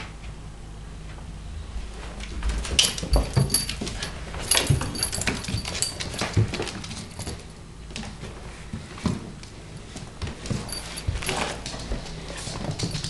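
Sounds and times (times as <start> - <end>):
paws thumping on floor: 2.4 - 7.4, 10.0 - 13.0.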